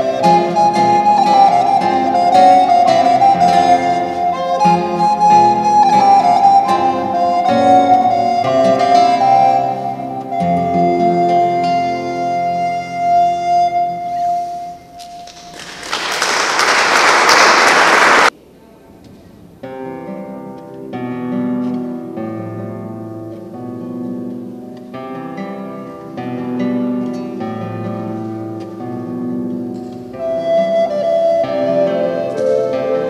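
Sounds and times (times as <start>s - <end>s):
classical guitar plucked notes: 0.0s - 15.5s, 19.4s - 33.0s
loud applause: 15.2s - 18.3s.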